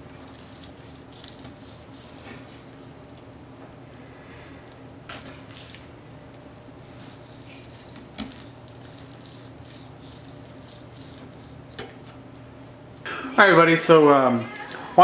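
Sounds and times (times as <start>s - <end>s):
steady low hum: 0.0s - 15.0s
knife cutting wet meat: 0.1s - 2.6s, 6.9s - 11.9s.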